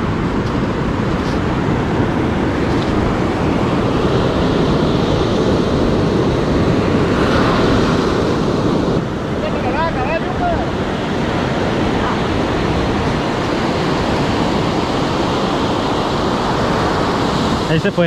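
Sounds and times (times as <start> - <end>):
surf washing onto beach: 0.0 - 18.0
wind rumbling on microphone: 0.0 - 18.0.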